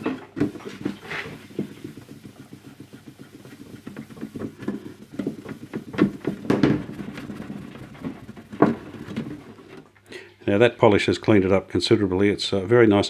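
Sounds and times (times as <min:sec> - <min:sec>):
polishing pad scrubbing plastic: 0:00.0 - 0:09.9.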